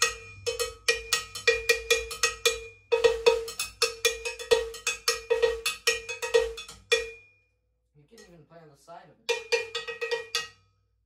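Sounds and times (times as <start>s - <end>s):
cowbell struck with drumstick: 0.0s - 7.4s, 9.3s - 10.7s.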